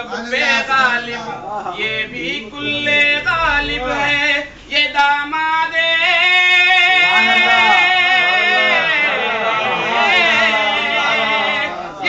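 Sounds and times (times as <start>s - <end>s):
man singing a long wavering note: 2.6s - 4.5s.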